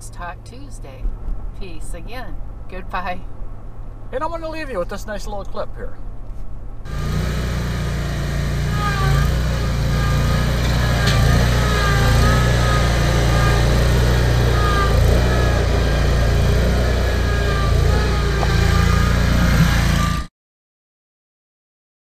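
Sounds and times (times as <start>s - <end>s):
mower engine running: 6.9s - 20.3s.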